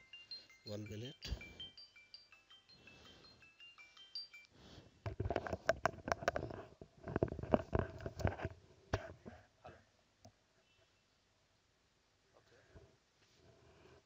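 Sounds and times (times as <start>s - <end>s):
faint tinkling chime notes: 0.0s - 4.8s.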